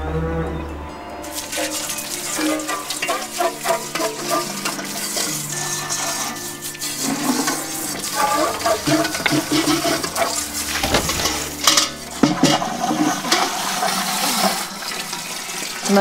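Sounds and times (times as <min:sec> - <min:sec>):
hose water splashing into cans: 0:01.3 - 0:16.0
metal cans clanking: 0:07.3 - 0:13.5.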